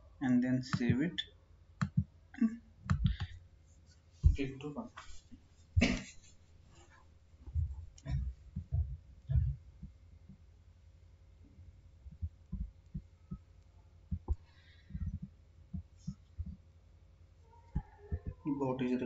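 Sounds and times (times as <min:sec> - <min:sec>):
faint hum: 0:00.0 - 0:19.0
dull low thumps: 0:02.8 - 0:03.5, 0:04.2 - 0:04.6, 0:07.3 - 0:13.5, 0:14.1 - 0:16.7.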